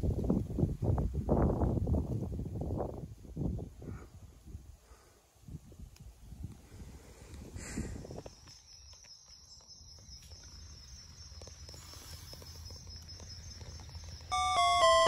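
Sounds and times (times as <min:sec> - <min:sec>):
low rumble of wind: 0:00.0 - 0:08.6
insects trilling: 0:08.0 - 0:15.0.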